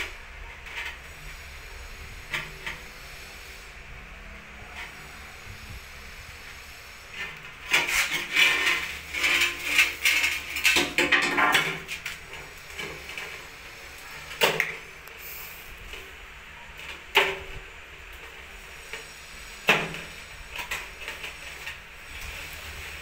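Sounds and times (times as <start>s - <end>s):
trowel scraping tile adhesive: 6.4s - 16.0s.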